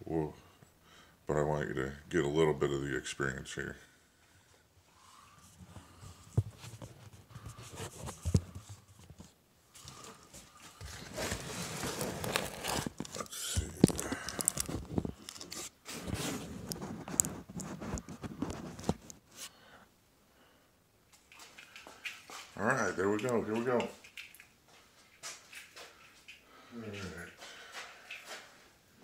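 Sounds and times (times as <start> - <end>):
phone microphone rubbing on clothing: 5.1 - 19.5.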